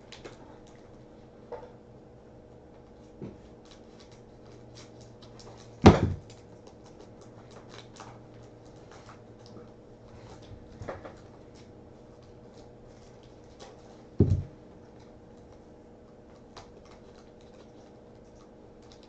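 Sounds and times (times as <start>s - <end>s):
cards clicking and rustling: 3.6s - 14.0s
knock: 14.2s - 14.5s.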